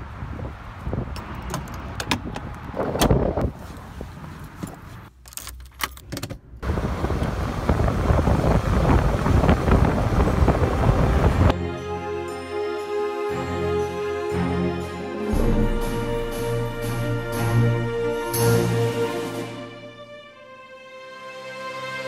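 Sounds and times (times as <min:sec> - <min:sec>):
car driving at speed: 0:06.5 - 0:11.5.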